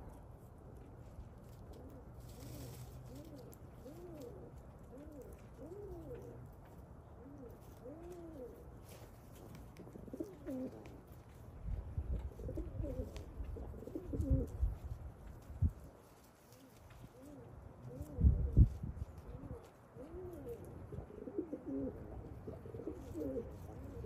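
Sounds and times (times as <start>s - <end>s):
pigeons cooing: 1.7s - 9.0s, 9.8s - 11.2s, 12.1s - 14.8s, 16.5s - 24.0s.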